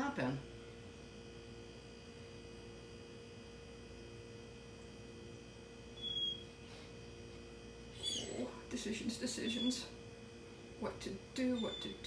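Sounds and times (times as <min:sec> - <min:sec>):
faint electrical hum: 0:00.0 - 0:12.0
dog whining: 0:06.0 - 0:06.5, 0:07.9 - 0:08.7, 0:09.4 - 0:09.9, 0:11.4 - 0:12.0.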